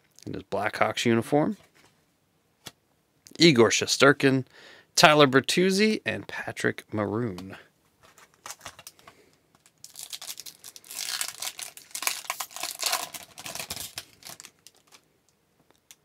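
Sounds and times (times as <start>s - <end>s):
card pack wrapper tearing: 8.2s - 9.0s, 9.6s - 15.0s.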